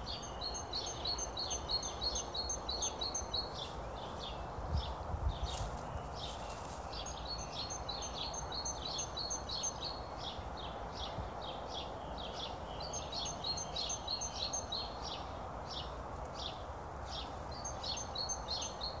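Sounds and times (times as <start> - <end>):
outdoor background hiss: 0.0 - 19.0
songbird chirping and twittering: 0.0 - 19.0.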